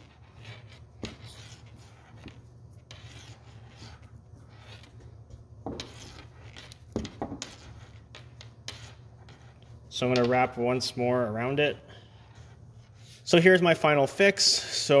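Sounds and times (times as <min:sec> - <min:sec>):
tape rubbing and rasping: 0:00.0 - 0:10.4.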